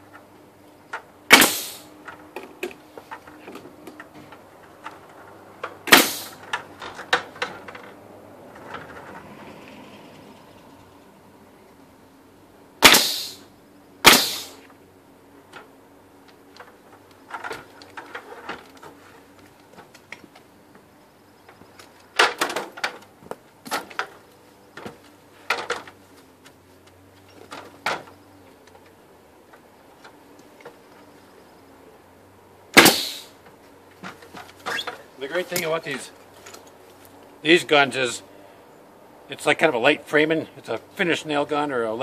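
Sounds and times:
nail gun firing: 1.3 - 1.9, 5.8 - 6.4, 12.8 - 13.4, 14.0 - 14.6, 32.8 - 33.3.

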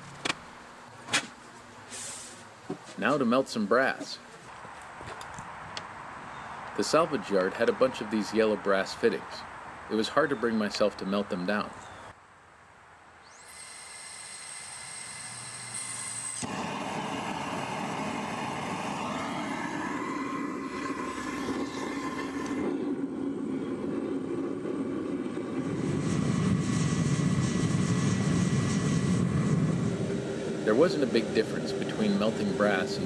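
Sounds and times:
gas burner roaring: 0.0 - 4.2, 13.2 - 33.0
gas hiss: 1.8 - 2.5, 13.2 - 22.8.

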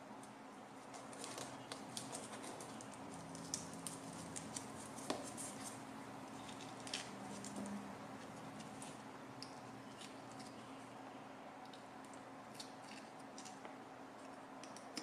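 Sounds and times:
fingers handling paper bits: 0.2 - 9.0.

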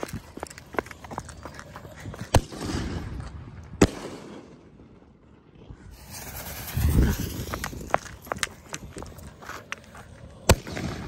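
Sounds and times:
firework hissing: 5.9 - 8.8.

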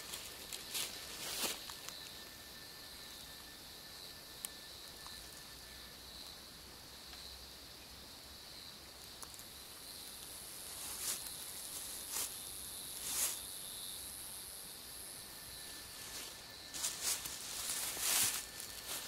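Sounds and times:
footsteps in dry leaves: 0.0 - 1.9, 10.6 - 12.4, 13.0 - 13.4, 15.8 - 19.0
night insects chirping: 0.0 - 19.0.

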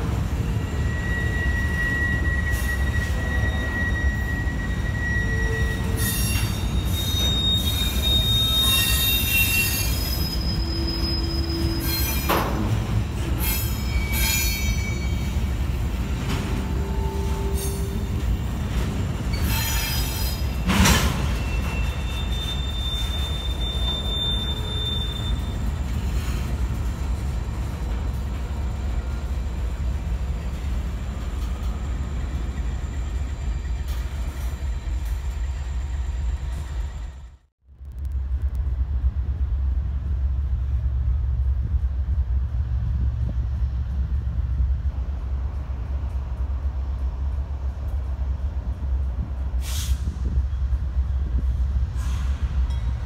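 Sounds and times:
train wheels rumbling on rails: 0.0 - 53.0
wheel squeal: 0.4 - 12.6, 13.3 - 15.5, 19.2 - 26.6.

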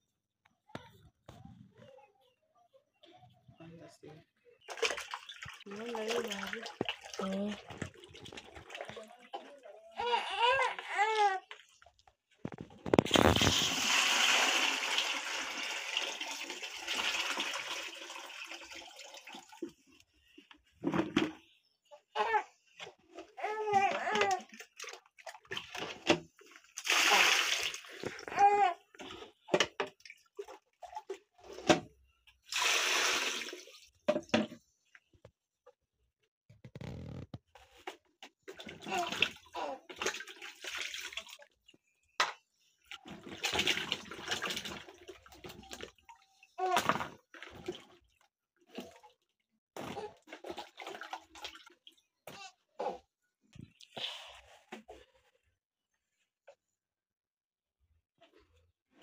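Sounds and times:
water splashing into plastic bucket: 4.6 - 9.6, 11.0 - 20.0, 23.7 - 34.6, 38.4 - 41.5, 42.2 - 52.1
potatoes splashing in water: 4.7 - 9.2.

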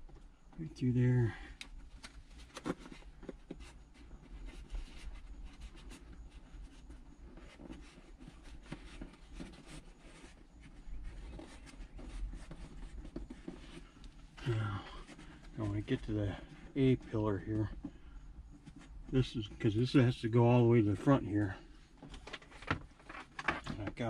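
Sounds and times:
small irregular clicks: 1.5 - 3.7
scratching and rubbing: 2.0 - 19.9.

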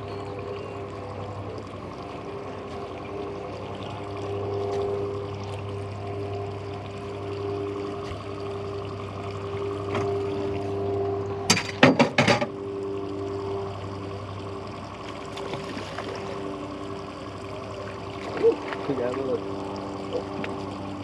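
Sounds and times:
outboard motor running: 0.0 - 21.0.

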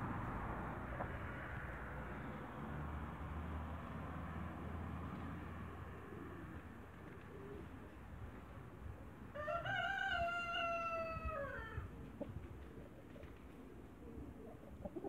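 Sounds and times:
rooster crowing: 9.3 - 11.8.

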